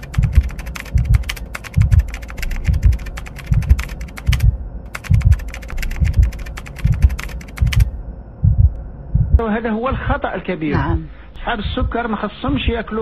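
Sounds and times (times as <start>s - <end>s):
keyboard typing clicks: 0.0s - 7.9s
regular low thud: 0.2s - 5.4s, 6.0s - 12.8s.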